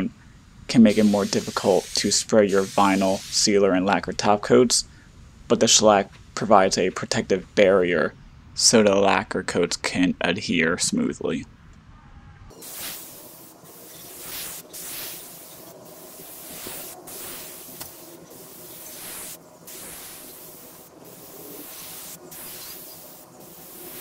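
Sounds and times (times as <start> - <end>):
spray gun hissing: 0.9 - 3.5, 12.5 - 24.0.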